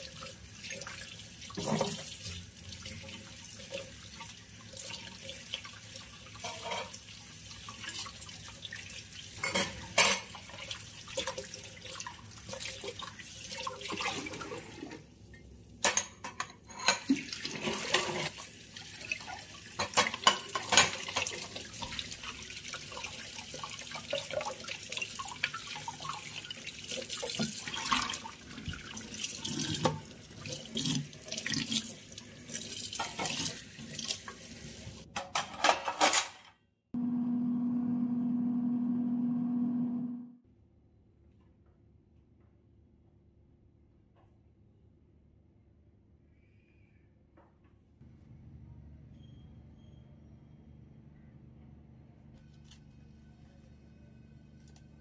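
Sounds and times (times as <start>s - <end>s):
dishes clinking: 6.4s - 7.0s, 9.4s - 10.4s, 15.8s - 18.3s, 19.8s - 21.4s.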